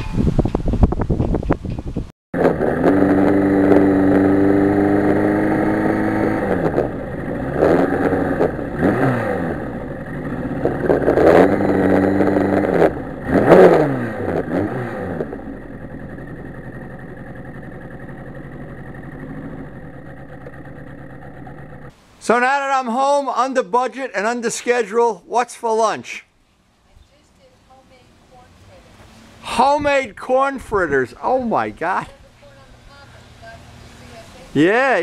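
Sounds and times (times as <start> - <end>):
motorcycle engine revving: 2.4 - 21.9.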